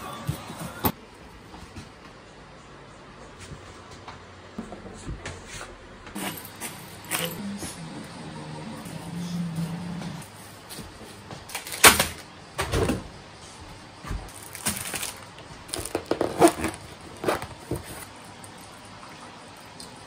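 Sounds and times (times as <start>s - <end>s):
cling film crinkling: 14.3s - 17.4s
canvas bag rustling: 14.3s - 18.0s.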